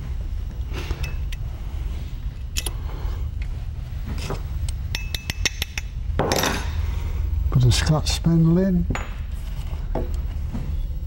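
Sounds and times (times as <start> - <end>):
steady low hum: 0.0 - 11.0
metal parts clicking and tapping: 4.6 - 6.6.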